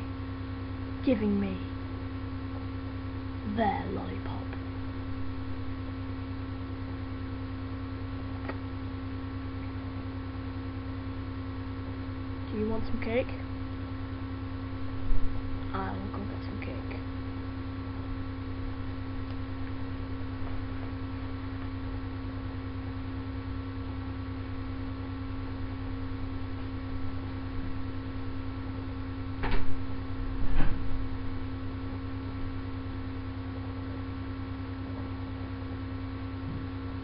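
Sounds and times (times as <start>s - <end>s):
electrical hum: 0.0s - 37.0s.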